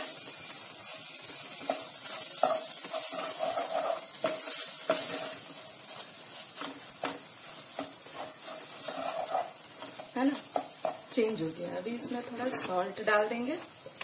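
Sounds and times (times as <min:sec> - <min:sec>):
food sizzling in oil: 0:00.0 - 0:14.0
spatula scraping saucepan: 0:01.6 - 0:11.2.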